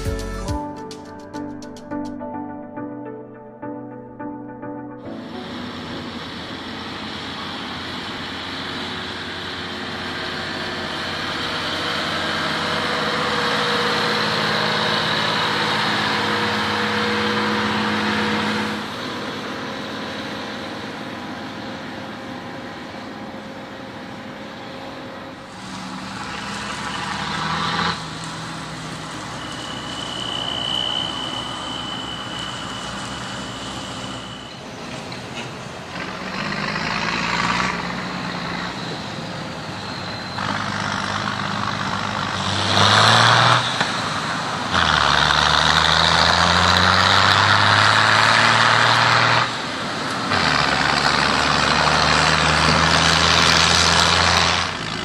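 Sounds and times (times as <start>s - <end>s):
steady high whine: 2.8s - 27.2s, 27.9s - 35.4s
diesel truck engine: 5.0s - 55.0s
tractor hauling a trailer: 5.0s - 55.0s.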